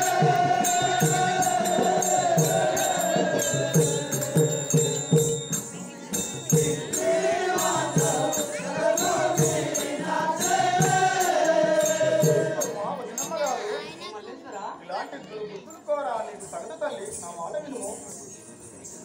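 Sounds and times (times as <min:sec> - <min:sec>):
small metal percussion ticking: 0:00.0 - 0:13.9
drum beating steady rhythm: 0:00.0 - 0:14.0.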